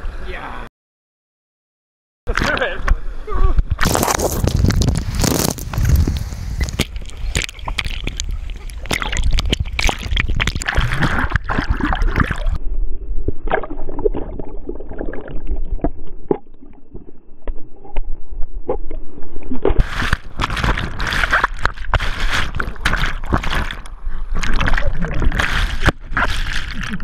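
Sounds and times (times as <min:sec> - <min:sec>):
water churning and splashing: 0:03.8 - 0:12.6, 0:19.8 - 0:27.0
muffled underwater sound: 0:06.6 - 0:12.6.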